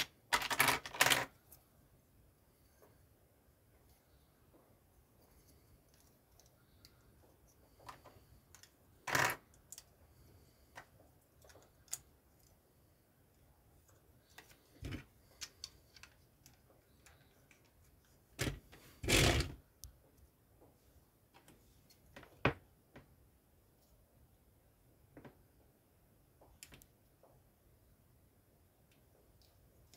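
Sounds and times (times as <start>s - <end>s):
plastic bricks clicking: 0.0s - 1.4s, 7.9s - 10.0s.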